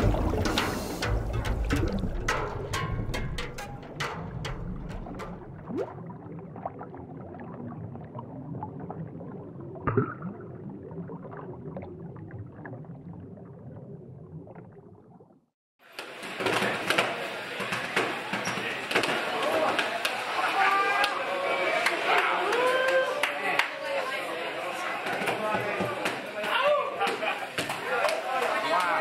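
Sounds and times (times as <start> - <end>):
scattered knocks: 0.0 - 5.7
underwater bubbling and gurgling: 0.0 - 15.5.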